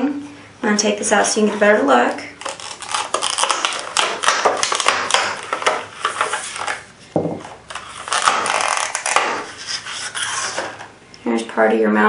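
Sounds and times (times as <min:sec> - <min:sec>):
plastic packaging crackling: 0:02.4 - 0:06.9, 0:07.6 - 0:10.9.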